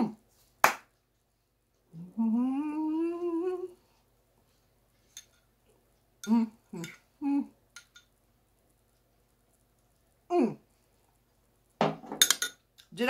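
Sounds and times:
woman humming: 0:01.9 - 0:03.8, 0:06.2 - 0:07.6, 0:10.3 - 0:10.7.

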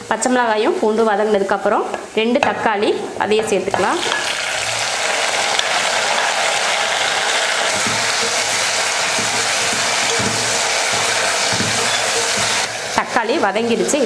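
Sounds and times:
tomatoes sizzling in hot oil: 0:00.0 - 0:14.0
wooden spatula stirring in pot: 0:03.5 - 0:13.0.

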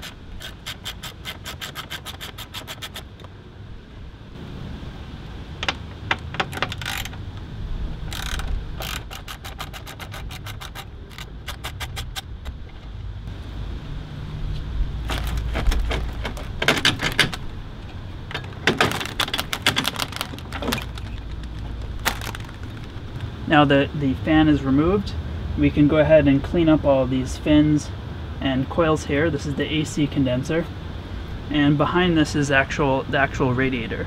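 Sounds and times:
hand tools clicking and rattling: 0:00.0 - 0:03.3, 0:05.6 - 0:07.2, 0:08.1 - 0:13.0, 0:15.1 - 0:23.3.

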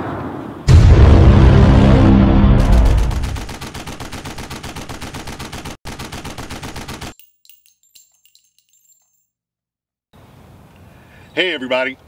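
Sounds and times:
automatic gunfire: 0:02.6 - 0:07.2
faint metallic clinks: 0:07.1 - 0:09.4.

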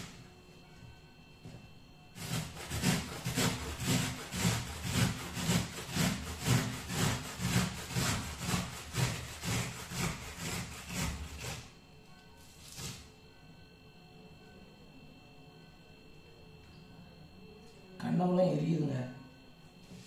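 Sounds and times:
onion grated on metal grater: 0:02.2 - 0:11.7.

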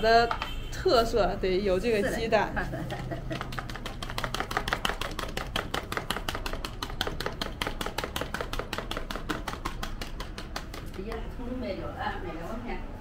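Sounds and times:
chopsticks beating egg in bowl: 0:02.8 - 0:11.5.

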